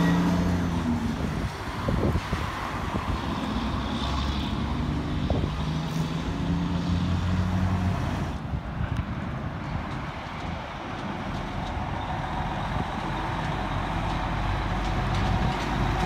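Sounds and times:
truck diesel engine pulling away: 0.0 - 8.4, 11.0 - 16.0
cars passing close by: 0.0 - 8.5.

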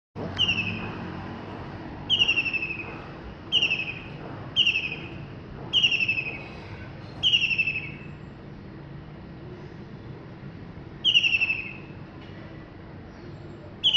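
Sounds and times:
kingfisher rattling trills: 2.1 - 2.9, 3.5 - 6.5.

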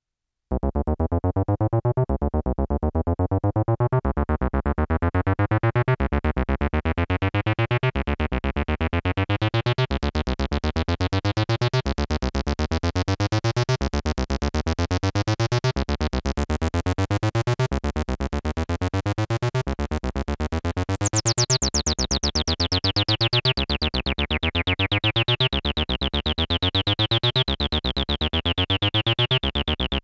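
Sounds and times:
synthesizer bass pattern: 17.9 - 21.5.

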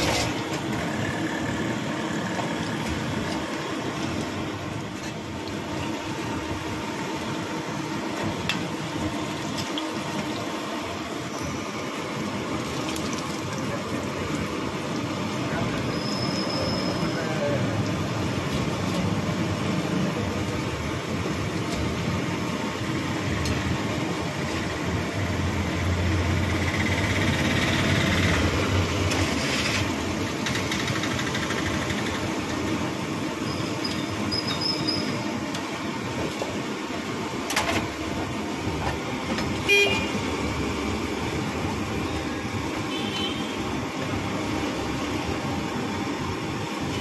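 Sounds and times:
oil sizzling deep-frying: 0.0 - 47.0
street traffic: 0.0 - 47.0
car horn: 39.6 - 40.2, 42.9 - 43.6.

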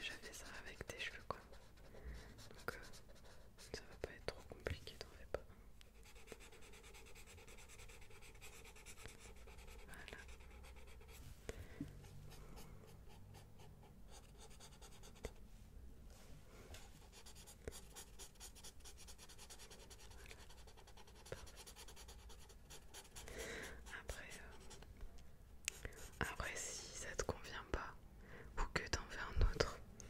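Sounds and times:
pencil scratching on paper: 1.0 - 4.1, 5.9 - 11.2, 12.0 - 15.4, 16.8 - 24.8, 25.8 - 26.4.

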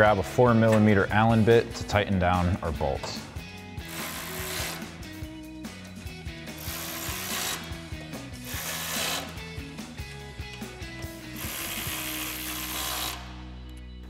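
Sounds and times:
electric ratchet running: 3.8 - 5.1, 6.4 - 9.6, 11.3 - 13.4.

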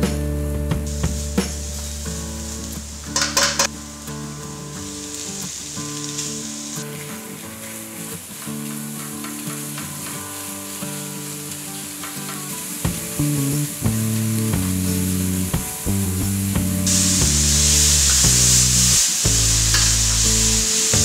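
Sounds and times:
meat sizzling in a wok: 0.0 - 21.0
spatula scraping and tapping pan: 3.1 - 3.7, 8.4 - 10.7, 11.5 - 13.3, 19.7 - 20.2.

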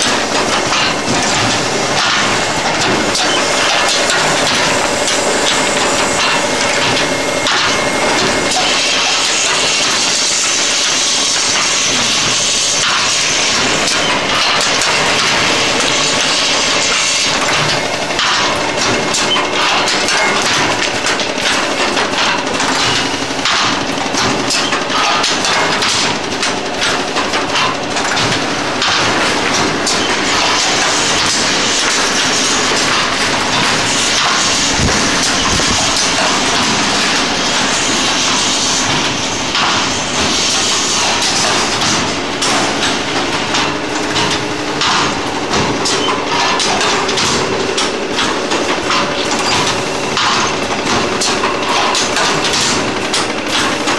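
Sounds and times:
machinery clattering: 0.0 - 53.9.

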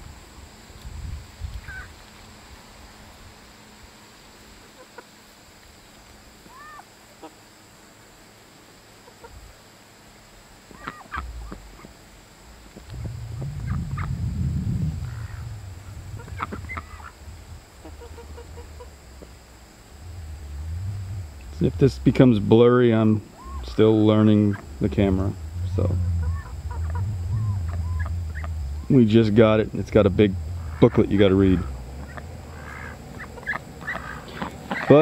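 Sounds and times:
chickens clucking and squawking: 9.0 - 9.4, 10.7 - 11.9, 15.0 - 19.3, 23.4 - 29.6, 30.5 - 35.0
low rumble: 11.1 - 34.8.

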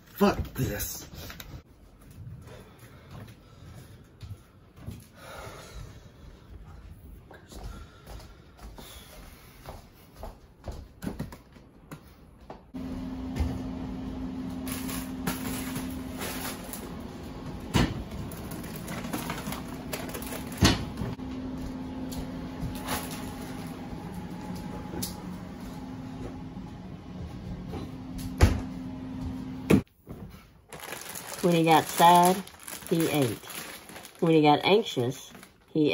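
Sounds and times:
steady low hum: 12.8 - 29.9.

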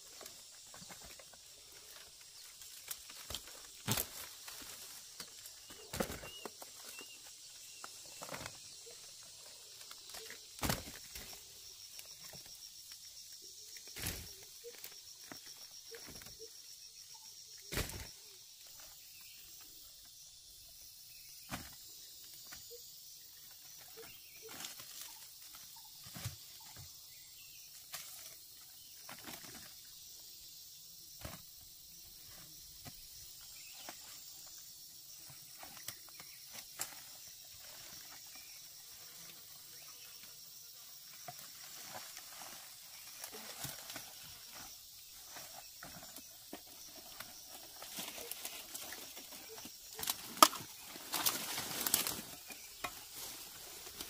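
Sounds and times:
dry leaves rustling underfoot: 0.0 - 11.5, 41.4 - 54.0
forest fruits clattering into basket: 2.0 - 8.9, 9.7 - 11.4, 45.3 - 54.0.

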